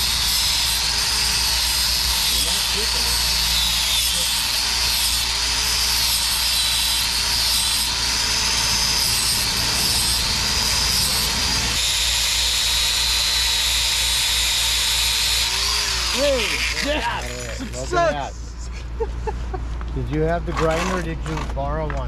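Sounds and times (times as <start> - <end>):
angle grinder grinding: 0.0 - 18.3.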